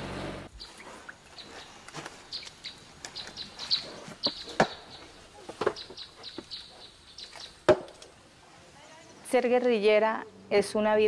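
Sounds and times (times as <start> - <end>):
bird chirps: 0.6 - 7.6.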